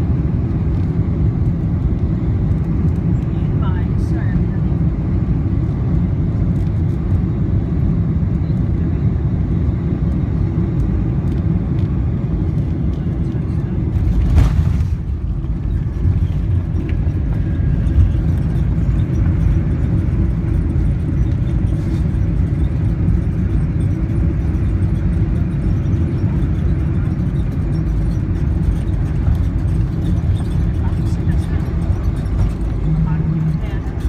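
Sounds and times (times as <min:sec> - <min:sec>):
aircraft engines low rumble: 0:00.0 - 0:34.0
landing gear rolling on runway: 0:09.9 - 0:34.0.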